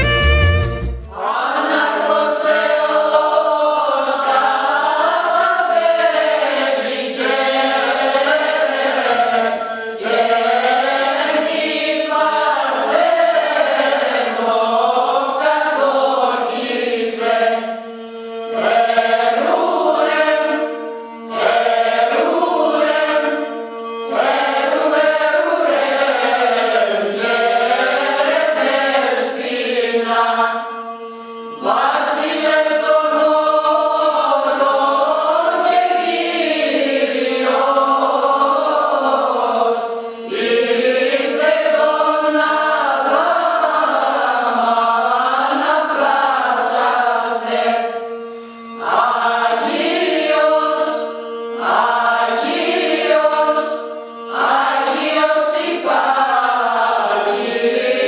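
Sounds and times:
held drone note: 0.0s - 1.2s
women's choir singing carols: 1.1s - 58.0s
singers breathing: 31.0s - 31.5s, 48.2s - 48.8s.

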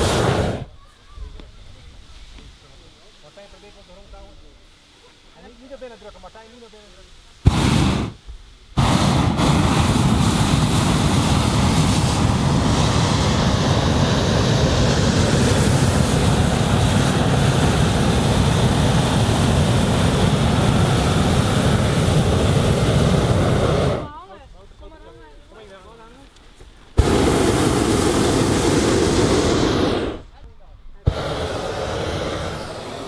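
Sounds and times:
propane burner firing: 0.0s - 0.7s, 7.4s - 24.2s, 26.9s - 30.3s, 31.0s - 33.0s.

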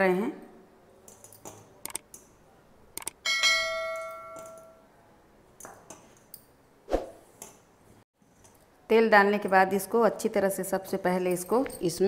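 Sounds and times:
short clicks: 1.8s - 2.2s, 3.0s - 3.2s.

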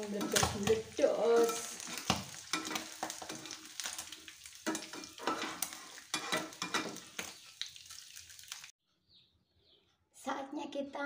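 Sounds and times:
metal spatula scraping strainer: 0.0s - 3.7s, 4.7s - 7.2s
fish sizzling in hot oil: 0.0s - 8.8s.

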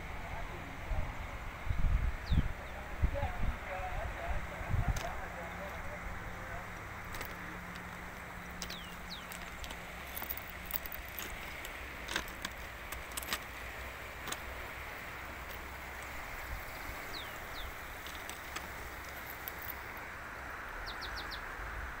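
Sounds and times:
river rushing: 2.5s - 22.0s
bird chirps: 20.8s - 21.4s.

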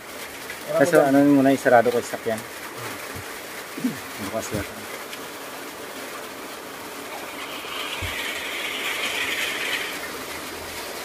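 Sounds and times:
rain hissing: 0.0s - 11.0s
buzzing insect call: 7.2s - 10.1s.

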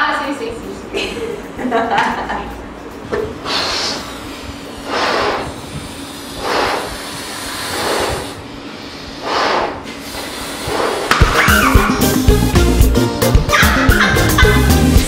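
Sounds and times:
breath puffs into balloons: 3.4s - 11.7s.

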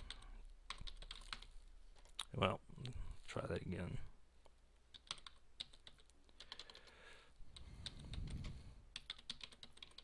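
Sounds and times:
computer keyboard typing: 0.0s - 2.2s, 4.9s - 10.0s.

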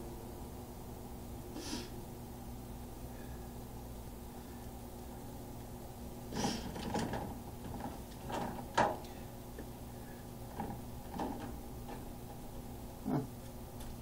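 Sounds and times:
steady low hum: 0.0s - 14.0s
clicks and knocks of handling: 6.6s - 9.1s, 10.5s - 12.4s.

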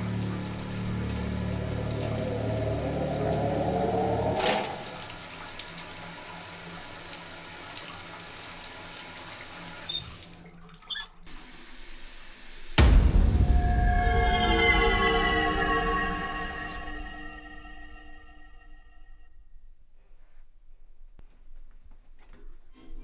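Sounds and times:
low drone: 0.0s - 5.4s, 12.8s - 19.1s
shower water running: 0.0s - 13.4s
tap handle squeak: 9.9s - 10.2s, 10.8s - 11.2s
sharp hit: 12.8s - 18.8s.

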